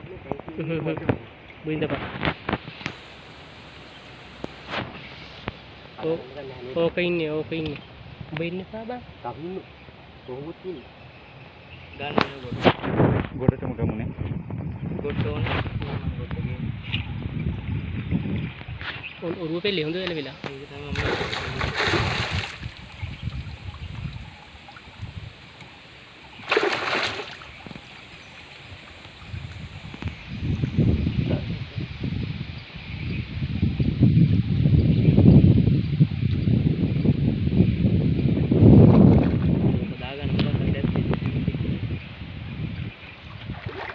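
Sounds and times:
wind rumbling on microphone: 0.0 - 43.9
water splashing and dripping: 20.0 - 30.8, 43.4 - 43.9
loud water splashes: 20.4 - 25.1, 26.3 - 29.9, 43.5 - 43.9.

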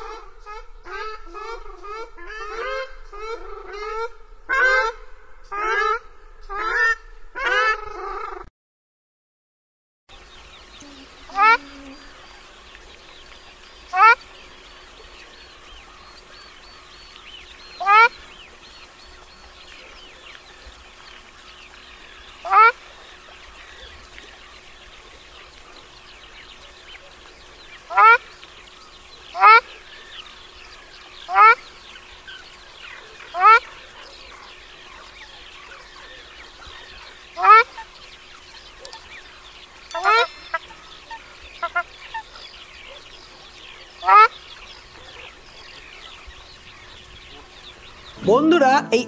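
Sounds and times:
duck honking call: 0.0 - 8.4, 22.4 - 22.8, 33.3 - 33.7, 37.4 - 37.9
faint high bird calls: 10.2 - 49.0
shelduck calling: 10.8 - 12.0.

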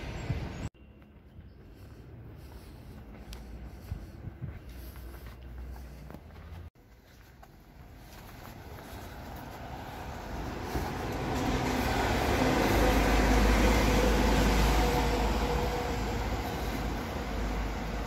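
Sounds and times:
bus driving past: 7.8 - 18.0.

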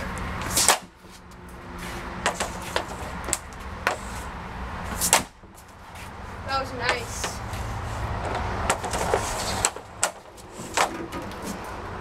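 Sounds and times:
stick striking puck crack: 0.4 - 1.2, 5.0 - 5.6, 8.3 - 11.5.

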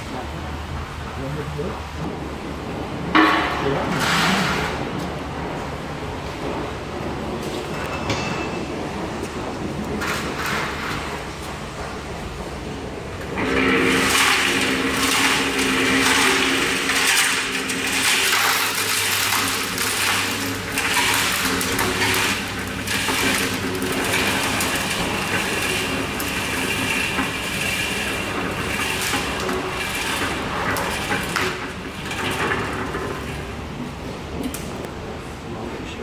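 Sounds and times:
mixer motor hum: 9.6 - 34.9
concrete tumbling into metal tray: 13.4 - 33.4.

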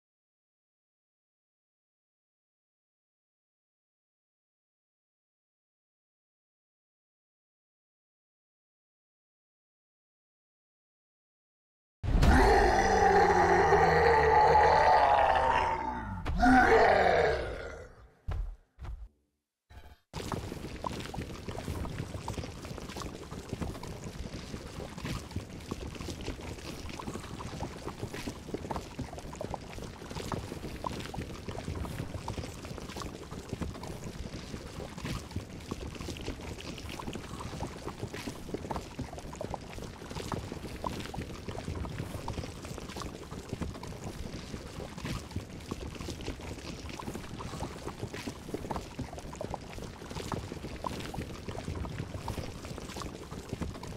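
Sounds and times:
liquid bubbling and popping: 20.2 - 53.9.

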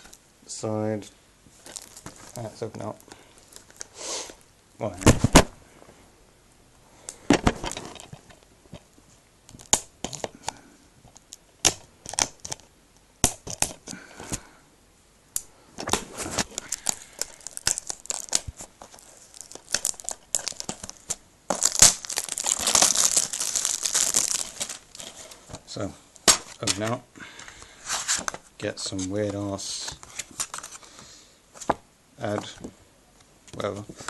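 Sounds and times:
plastic wrapping crinkling: 1.5 - 3.9, 15.9 - 27.0, 29.6 - 30.9.

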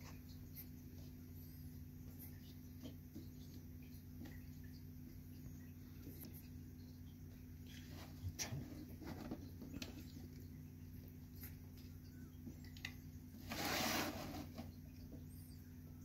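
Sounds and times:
faint taps and rustles: 2.0 - 13.2
scraping rustle: 13.3 - 14.8.

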